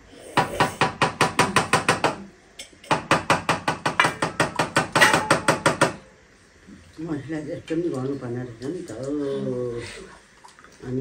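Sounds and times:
bone knocking on ringing steel plate: 0:02.9 - 0:06.0.

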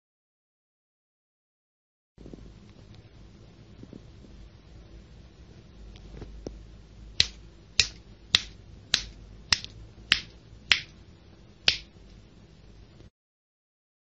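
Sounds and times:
finger snaps: 0:07.2 - 0:11.0, 0:11.7 - 0:11.9.

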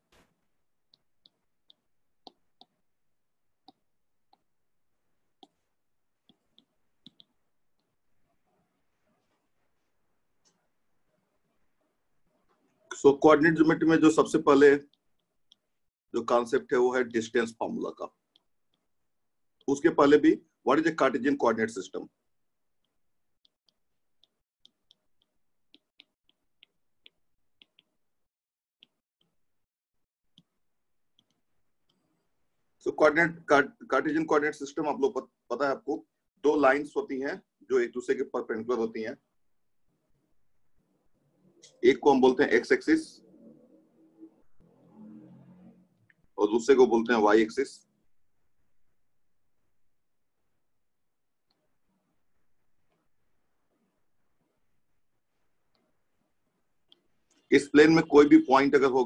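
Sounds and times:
stylus tapping on glass screen: 0:22.8 - 0:28.0.

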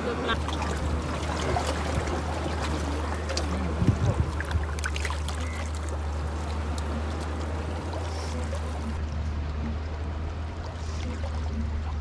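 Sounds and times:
water lapping against rocks: 0:00.0 - 0:12.0
wind rumble on microphone: 0:03.3 - 0:12.0.

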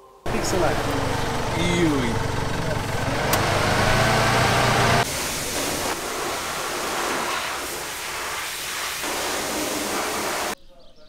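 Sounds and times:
vehicle engine idling: 0:00.3 - 0:07.2
water spraying: 0:00.3 - 0:10.6.

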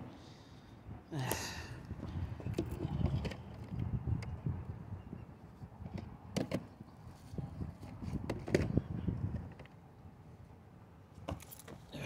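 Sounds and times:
handling knocks and clicks: 0:11.2 - 0:11.9.

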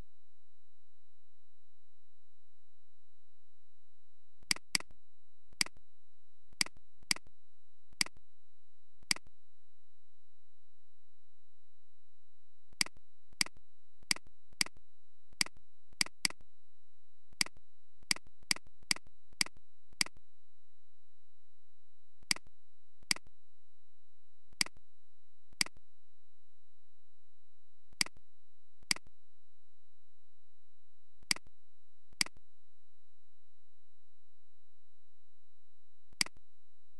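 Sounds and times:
faint steady hum: 0:00.0 - 0:36.9
computer mouse clicking: 0:04.4 - 0:04.9, 0:12.8 - 0:14.8, 0:15.4 - 0:16.4, 0:25.6 - 0:25.8, 0:36.2 - 0:36.4.

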